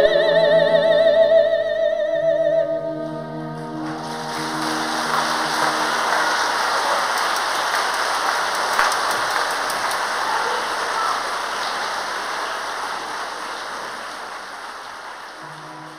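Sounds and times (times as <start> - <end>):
audience applauding: 3.6 - 15.9.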